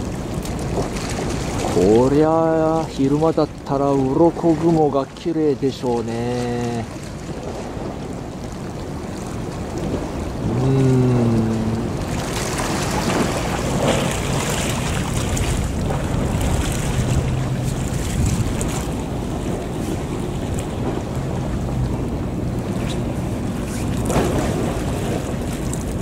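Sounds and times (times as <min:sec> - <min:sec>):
open sea water: 0:00.0 - 0:26.0
wind rushing over microphone: 0:07.3 - 0:26.0.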